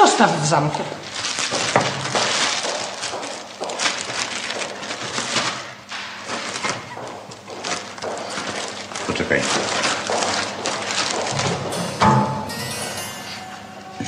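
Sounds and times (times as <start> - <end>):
clothes and bag rustling: 1.0 - 11.8.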